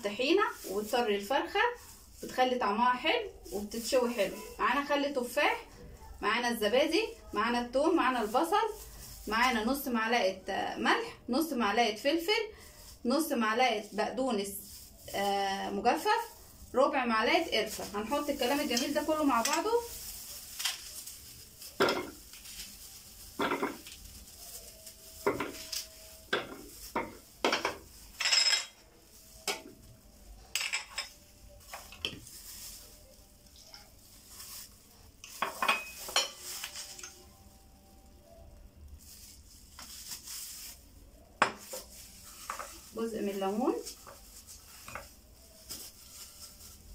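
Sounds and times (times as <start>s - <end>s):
kitchenware knocking and clinking: 23.4s - 23.8s, 26.3s - 28.8s.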